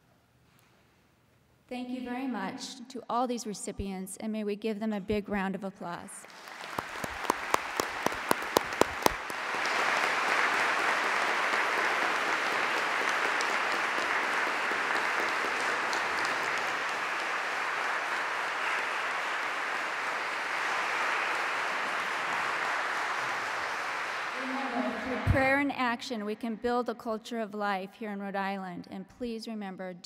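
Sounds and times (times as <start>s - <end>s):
congregation applauding: 6.2s - 25.3s.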